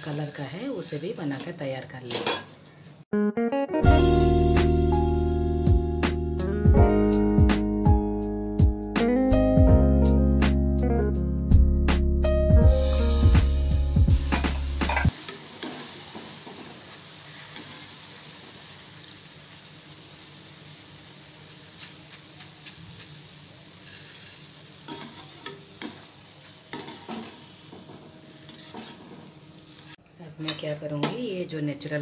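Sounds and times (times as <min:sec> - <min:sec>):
background music: 0:03.1 - 0:15.1
food frying in hot oil: 0:15.1 - 0:30.0
metal ladle tapping and scraping pan: 0:24.9 - 0:26.0, 0:26.7 - 0:29.2.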